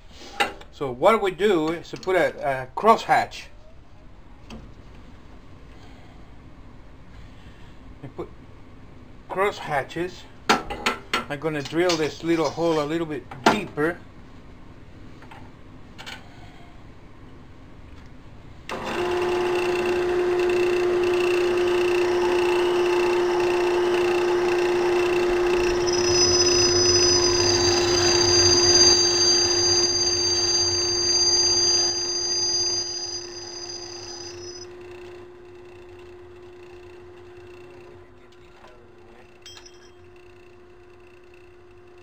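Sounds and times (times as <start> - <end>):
metal lathe humming: 20.8 - 34.6
drill bit squealing in brass: 24.5 - 34.6.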